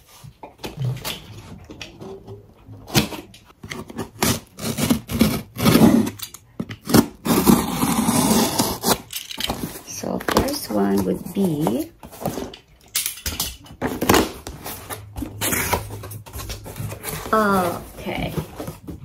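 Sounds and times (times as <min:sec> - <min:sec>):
cardboard scraping rasp: 0:03.7 - 0:09.0, 0:13.8 - 0:19.0
box cutter scraping tape: 0:03.7 - 0:09.1, 0:13.9 - 0:16.1.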